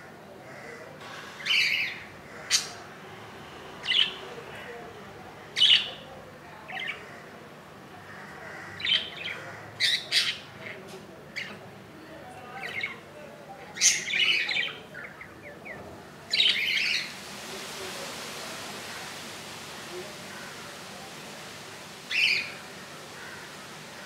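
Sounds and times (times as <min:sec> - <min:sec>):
budgerigars squawking and chirping: 0:08.8 - 0:10.5.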